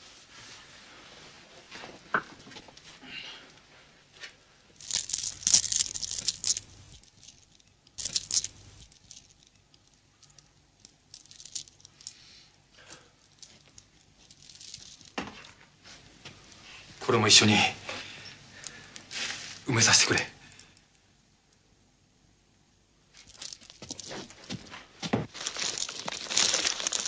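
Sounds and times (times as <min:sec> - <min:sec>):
dry rustling and crinkling: 0:04.7 - 0:12.2, 0:12.8 - 0:16.9, 0:23.1 - 0:27.0.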